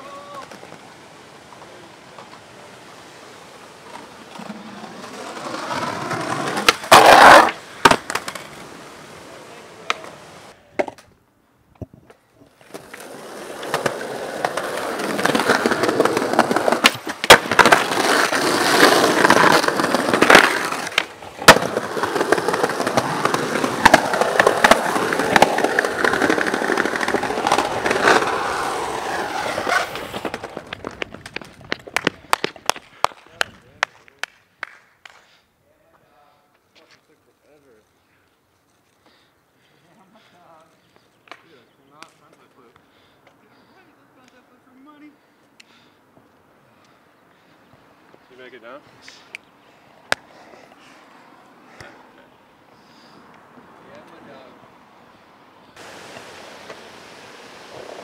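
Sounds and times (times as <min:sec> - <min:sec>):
skateboard wheels rolling on pavement: 0:00.0 - 0:35.2, 0:35.8 - 0:58.0
skateboard landing clatter: 0:06.2 - 0:08.6, 0:13.7 - 0:33.2
skateboard pops and clacks: 0:06.3 - 0:08.6, 0:09.8 - 0:11.1, 0:11.8 - 0:35.2.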